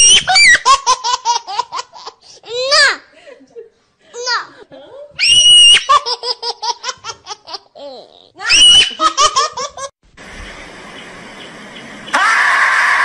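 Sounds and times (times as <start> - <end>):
high-pitched laughter: 8.5 - 9.9
steady hiss: 10.0 - 12.2.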